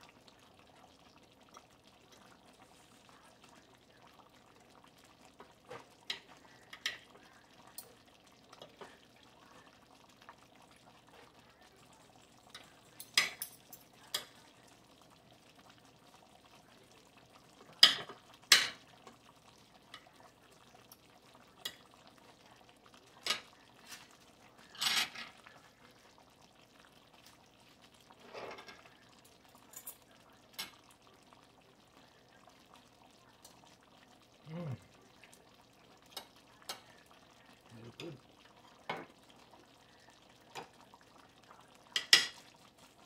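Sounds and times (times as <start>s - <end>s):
cutlery clinking and scraping on plate: 13.0s - 14.3s, 17.8s - 18.8s, 24.7s - 25.4s, 28.2s - 28.8s, 42.0s - 42.4s.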